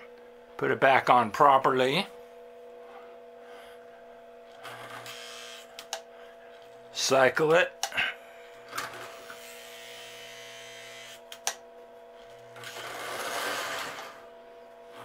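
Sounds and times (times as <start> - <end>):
toy train motor whirring: 4.7 - 5.9, 8.8 - 11.2, 12.6 - 14.2
power switch clicks: 5.8 - 6.0.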